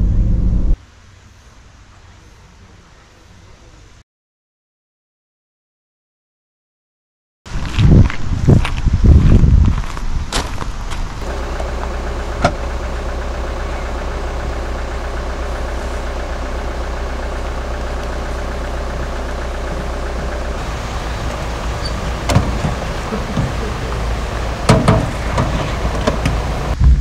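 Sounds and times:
car engine idling: 11.2 - 27.0
knocks: 24.7 - 27.0.

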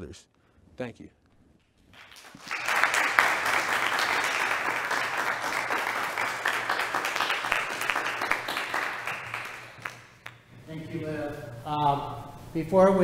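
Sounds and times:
many hands clapping: 1.9 - 10.5.

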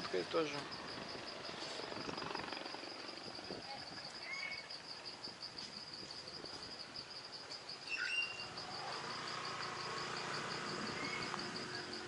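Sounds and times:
insects trilling: 0.0 - 12.0
whistled bird note: 7.9 - 8.5.

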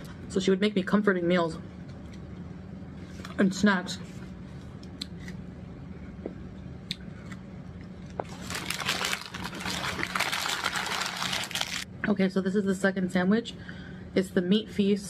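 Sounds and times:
paper wrapper crinkling: 8.2 - 11.9.

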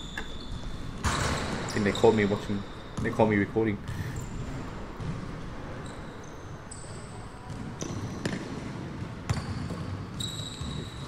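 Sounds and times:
basketball bouncing on court: 0.0 - 6.4, 7.4 - 11.0
sneaker squeaks: 0.0 - 11.0.

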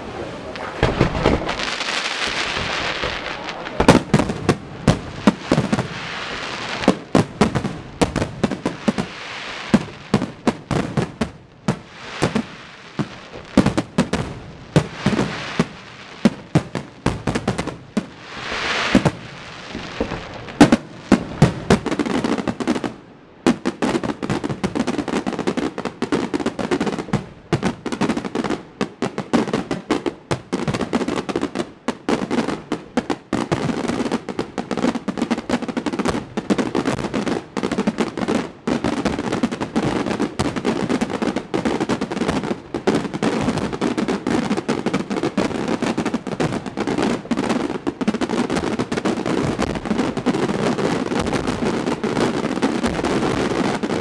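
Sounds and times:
firework shells bursting: 0.5 - 6.0.

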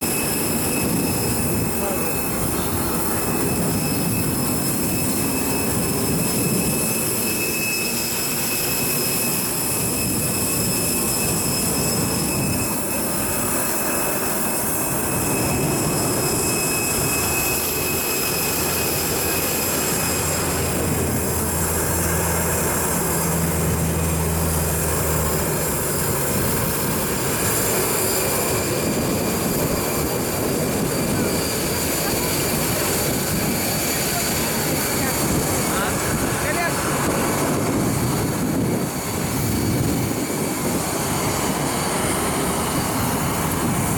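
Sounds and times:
aircraft turbine engines whining: 0.0 - 43.9.

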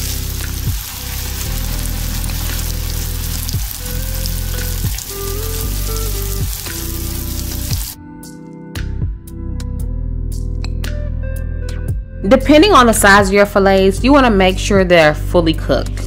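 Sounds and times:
fish frying in hot oil: 0.0 - 8.0
background music: 0.0 - 16.0.

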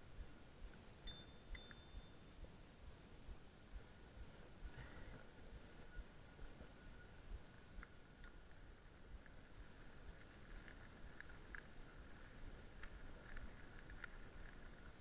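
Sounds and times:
bike tyres rumbling on dirt trail: 3.2 - 15.0
bike clicking and rattling: 7.8 - 15.0.

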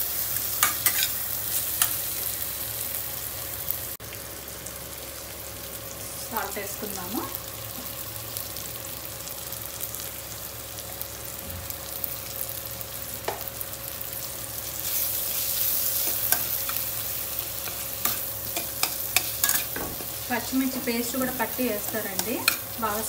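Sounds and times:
vegetables sizzling in hot oil: 0.0 - 23.0
spatula stirring and scraping: 0.6 - 1.2, 14.8 - 22.8.

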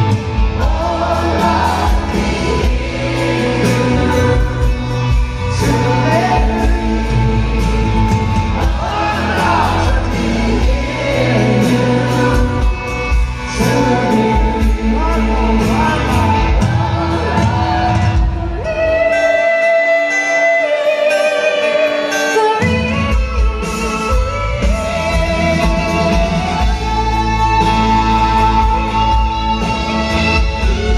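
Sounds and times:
backing singers: 0.0 - 19.3
live band with violins: 0.0 - 30.9
man singing slow song: 0.6 - 18.2.

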